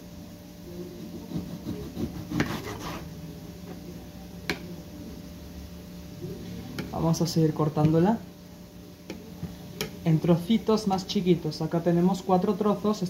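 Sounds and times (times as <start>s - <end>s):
knife sawing through meat: 1.2s - 3.1s.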